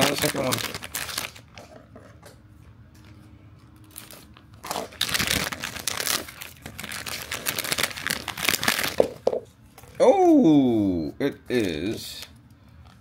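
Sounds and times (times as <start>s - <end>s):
foil bag crinkling and tearing: 0.0s - 1.6s, 3.8s - 9.2s.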